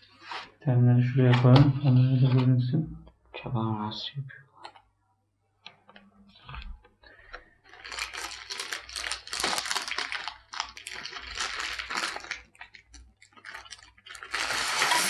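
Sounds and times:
paper and plastic rustling: 0:06.6 - 0:15.0.

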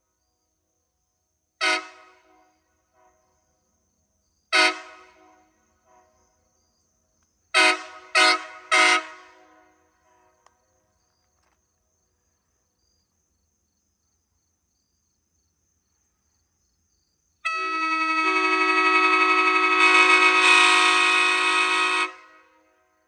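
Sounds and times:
locomotive air horn chord: 0:01.6 - 0:03.3, 0:04.5 - 0:06.3, 0:07.5 - 0:10.4, 0:17.4 - 0:22.9.

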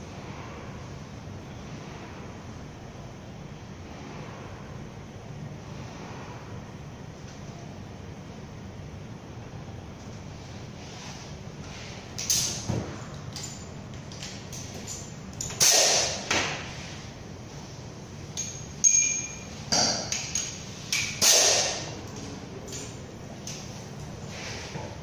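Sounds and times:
metallic clanks of hand tools: 0:18.4 - 0:21.8.

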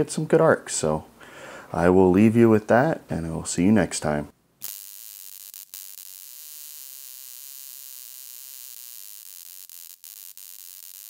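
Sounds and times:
electric arc hissing buzz: 0:04.6 - 0:11.0.

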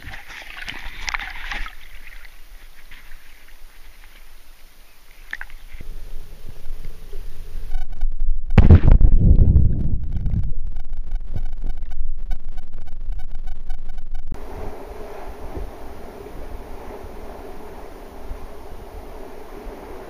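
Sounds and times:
water sloshing and gurgling: 0:00.0 - 0:07.2
muffled underwater rumble: 0:00.0 - 0:20.0.

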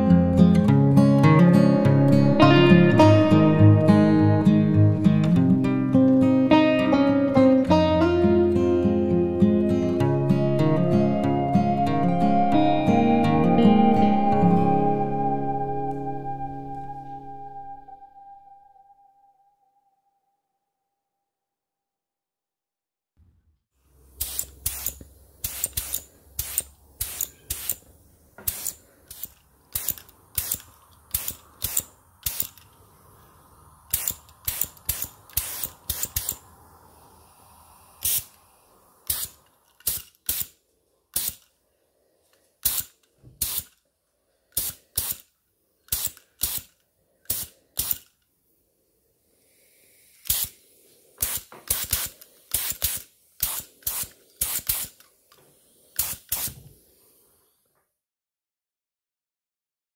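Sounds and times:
spray paint hissing: 0:24.0 - 0:41.6, 0:42.6 - 0:43.8, 0:44.5 - 0:48.2, 0:49.4 - 0:57.3.

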